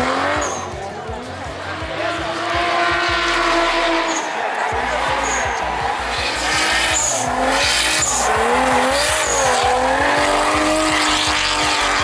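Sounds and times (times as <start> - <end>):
car engine revving: 0.0 - 12.0
tyres squealing: 4.1 - 12.0.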